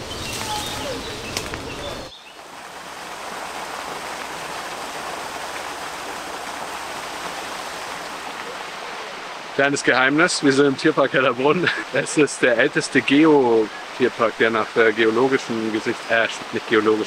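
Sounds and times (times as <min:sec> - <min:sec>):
waterfall over rocks: 0:00.0 - 0:17.0.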